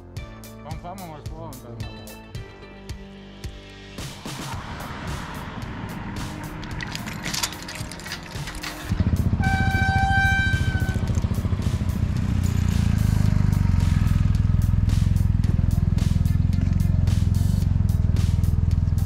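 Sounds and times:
motorcycle engine idling: 6.3s - 19.0s
metal gate latch clicks: 6.6s - 11.0s.

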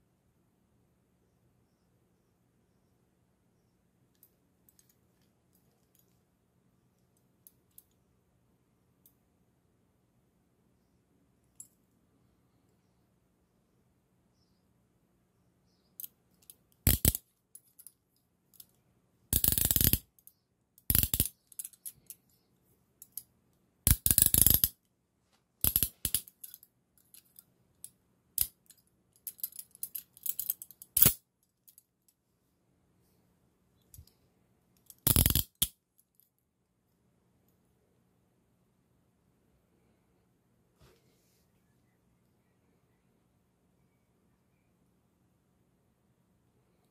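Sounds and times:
handcuffs ratcheting clicks: 16.0s - 17.9s, 19.4s - 22.2s, 23.9s - 24.8s, 25.6s - 31.8s, 34.8s - 35.8s.

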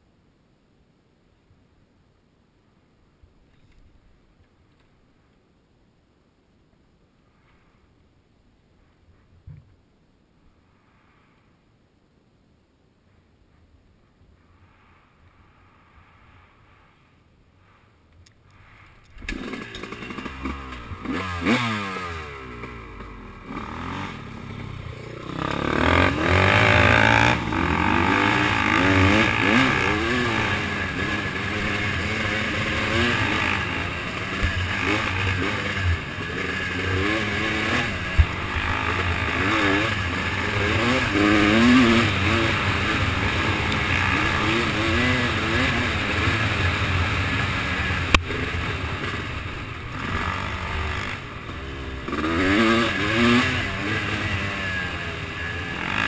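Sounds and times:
off-road vehicle engine revving: 18.6s - 56.0s.

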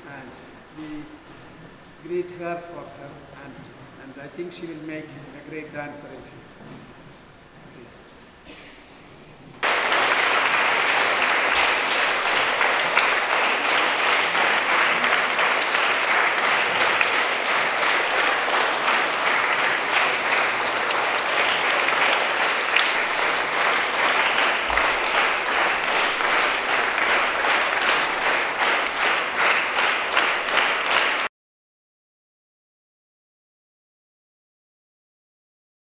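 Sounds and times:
audience applauding: 9.6s - 31.3s.

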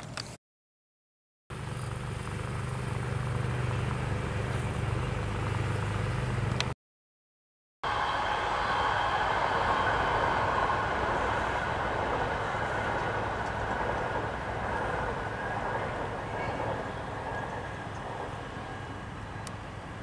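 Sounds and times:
passing vehicle rushing: 7.9s - 17.9s.

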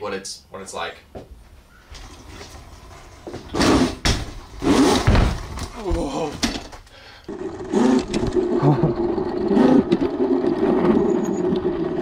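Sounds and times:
electric motor and chain hum: 7.3s - 12.0s.

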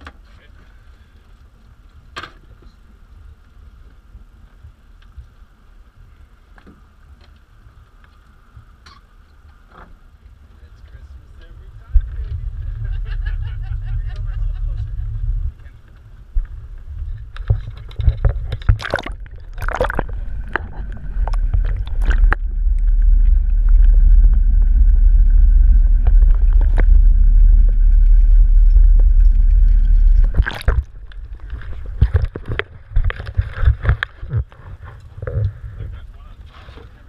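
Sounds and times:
muffled underwater rushing rumble: 10.0s - 37.0s
faint high whine: 10.4s - 32.9s.

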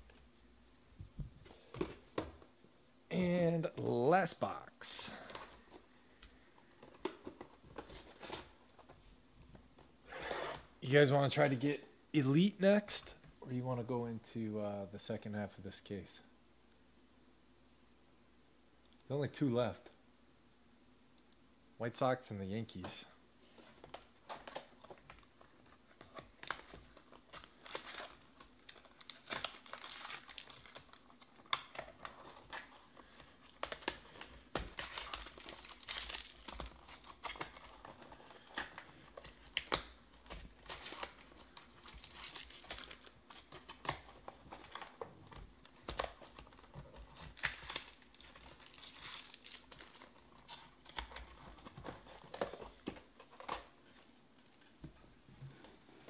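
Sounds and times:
foil wrappers crinkling: 23.9s - 53.7s.

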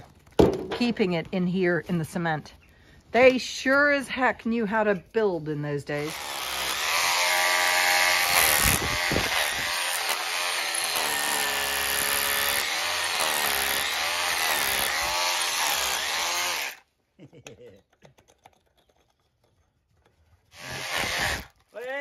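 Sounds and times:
power drill boring into cement: 6.0s - 16.8s, 20.5s - 21.6s.

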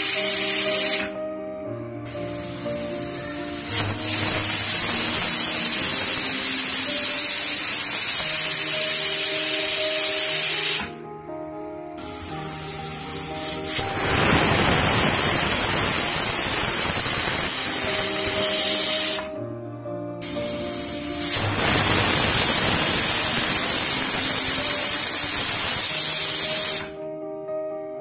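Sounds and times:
pressure cooker steam hiss: 0.0s - 1.2s, 2.1s - 11.0s, 12.0s - 19.4s, 20.2s - 27.0s
background music with melody: 0.0s - 28.0s.

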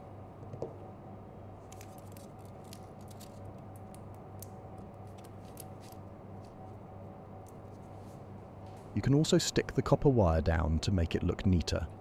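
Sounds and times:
steady low hum: 0.0s - 12.0s
tape clicks and crinkles: 1.7s - 6.6s.

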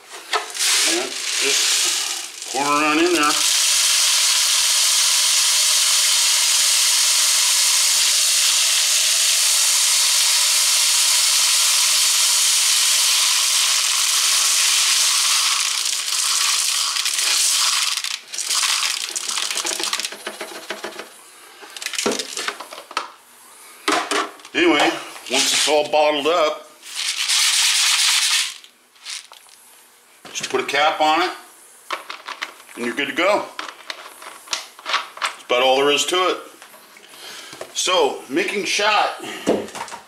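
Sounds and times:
pellet clicks and rattles: 0.1s - 3.8s, 13.7s - 21.1s, 21.7s - 23.1s, 26.9s - 29.6s, 31.9s - 32.8s, 33.6s - 35.4s
lead shot pouring into bottle: 0.5s - 20.2s, 26.9s - 29.6s.

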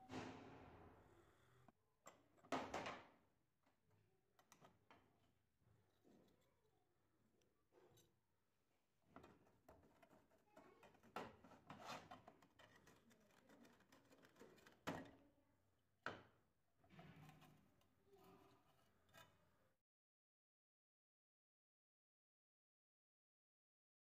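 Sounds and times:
screwdriver scraping metal: 10.9s - 15.0s.

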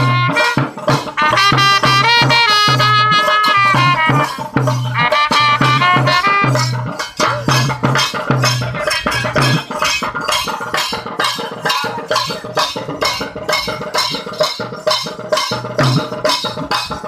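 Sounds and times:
drum beaten fast: 0.0s - 17.0s
pitched instrument notes: 0.0s - 17.0s.

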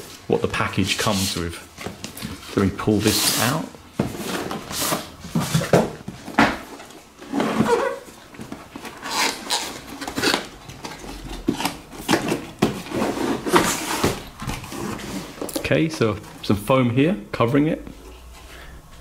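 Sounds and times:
cardboard rubbing and scraping: 2.2s - 15.5s.

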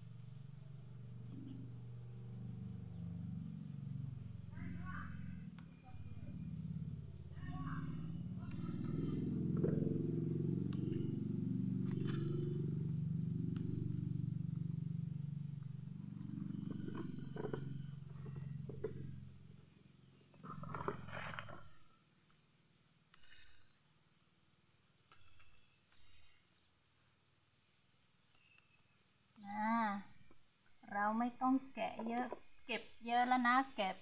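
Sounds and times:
steady high whine: 0.0s - 34.0s
low rough drone: 0.9s - 19.6s.

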